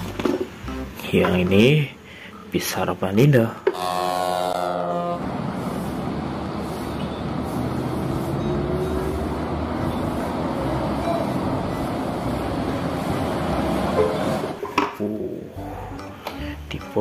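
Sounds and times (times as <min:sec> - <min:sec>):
bus air horn chord: 0:03.7 - 0:05.2
coach driving road noise: 0:04.0 - 0:14.6.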